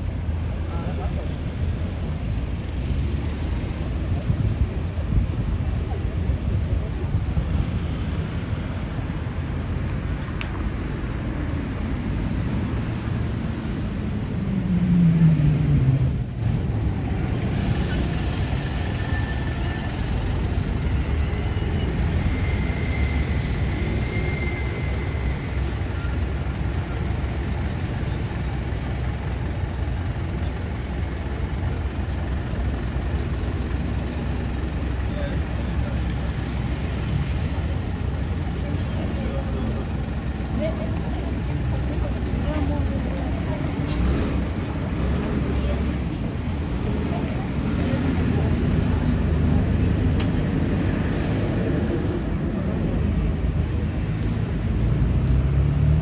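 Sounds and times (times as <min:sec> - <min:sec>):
traffic rumble: 0:00.0 - 0:56.0
vehicle passing by: 0:46.8 - 0:56.0.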